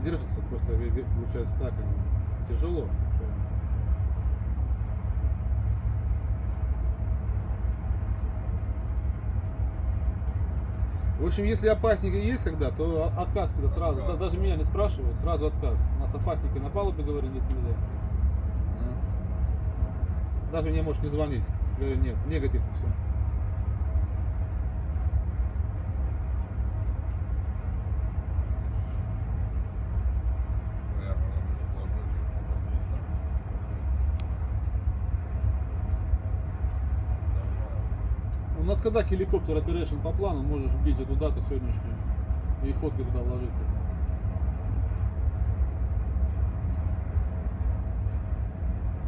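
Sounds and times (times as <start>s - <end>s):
faint steady hum: 0.0s - 49.0s
helicopter hovering: 0.0s - 49.0s
faint clicks: 6.3s - 24.3s, 24.9s - 27.5s, 31.5s - 48.8s.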